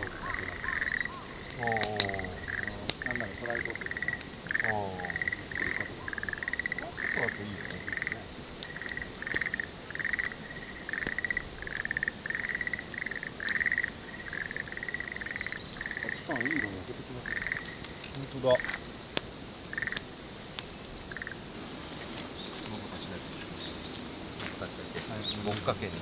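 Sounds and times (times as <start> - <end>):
frogs croaking: 0.0 - 26.0
wood fire crackling: 0.0 - 26.0.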